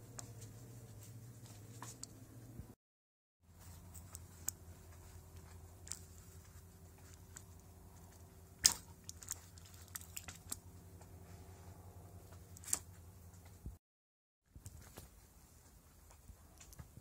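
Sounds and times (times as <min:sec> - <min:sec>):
steady low hum: 0:00.0 - 0:02.8, 0:03.5 - 0:13.8
clicks and knocks of handled parts: 0:03.6 - 0:11.1.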